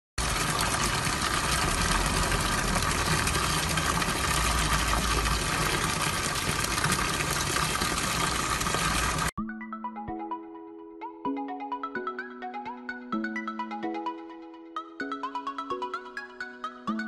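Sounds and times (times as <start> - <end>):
fountain water trickling and splashing: 0.2 - 9.3.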